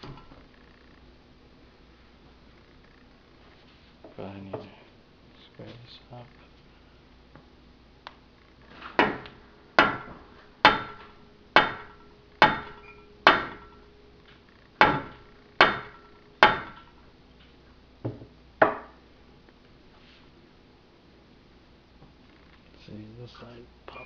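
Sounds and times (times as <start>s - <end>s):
rubber mallet striking metal tube: 11.6s - 13.7s.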